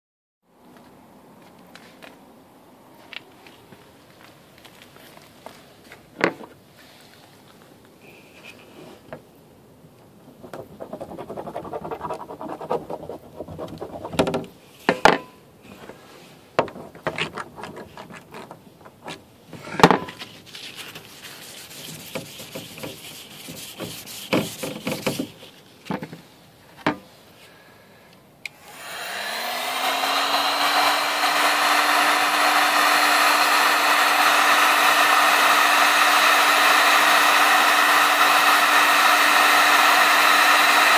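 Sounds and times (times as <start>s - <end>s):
scouring pad scraping plastic: 10.4s - 14.3s, 20.2s - 25.6s
heat gun fan blowing: 28.4s - 40.9s.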